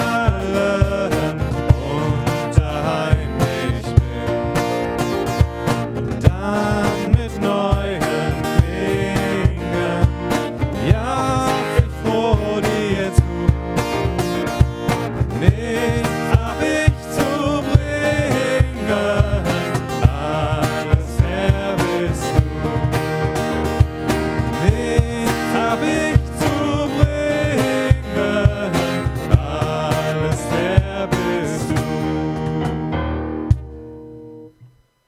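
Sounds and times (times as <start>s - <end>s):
two men singing: 0.0s - 5.3s, 6.1s - 32.7s
cajon beat: 0.0s - 34.4s
strummed acoustic guitar: 0.0s - 34.8s
piano chords: 27.9s - 34.5s.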